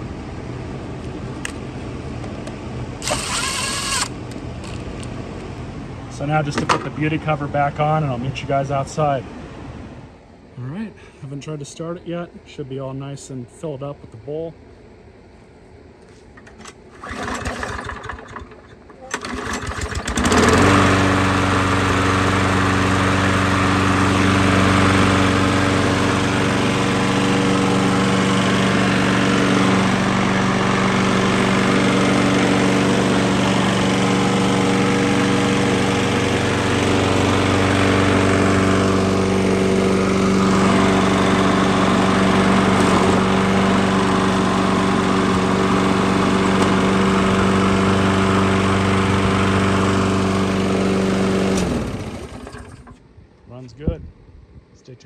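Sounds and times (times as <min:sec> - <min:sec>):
lawn mower engine running: 0:00.0 - 0:05.5, 0:16.4 - 0:53.1.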